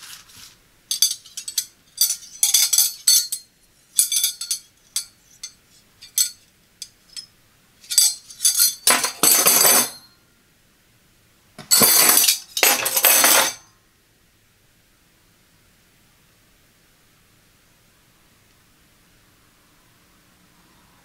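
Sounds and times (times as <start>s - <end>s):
metal scraping along metal: 0.9s - 10.0s
metal knives clinking: 0.9s - 10.1s, 11.6s - 13.6s.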